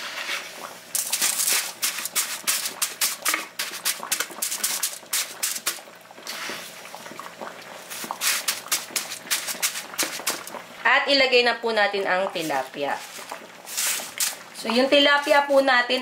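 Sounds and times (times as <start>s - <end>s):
salt scraping and crunching on foil: 0.2s - 6.5s, 7.9s - 10.5s, 12.4s - 15.6s.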